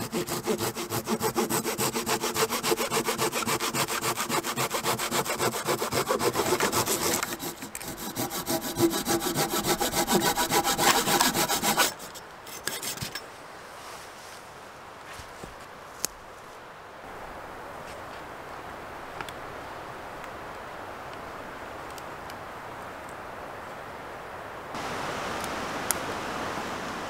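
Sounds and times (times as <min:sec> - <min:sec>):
hand saw cutting log: 0:00.0 - 0:13.2.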